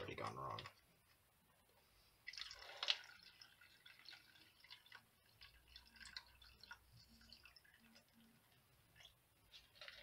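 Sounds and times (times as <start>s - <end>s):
drips into plastic tub: 0.0s - 0.9s, 2.2s - 10.0s
liquid splashing into filter: 2.2s - 10.0s.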